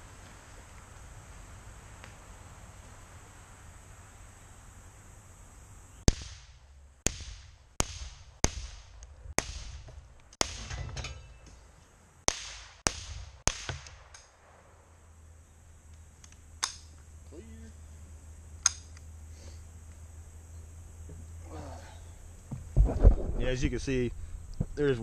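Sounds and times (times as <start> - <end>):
rifle shots with echo: 6.1 - 9.8, 12.3 - 14.6.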